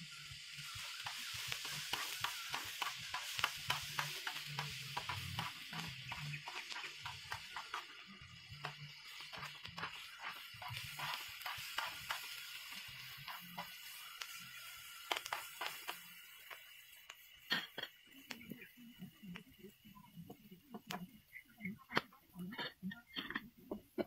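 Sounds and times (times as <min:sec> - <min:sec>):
onions sizzling on a griddle: 0:00.0 - 0:24.0.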